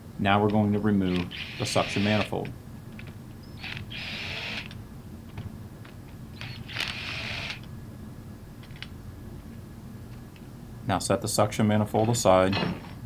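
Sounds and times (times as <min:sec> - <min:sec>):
cordless impact gun bursts: 0:01.1 - 0:02.3, 0:03.5 - 0:04.7, 0:06.4 - 0:07.6.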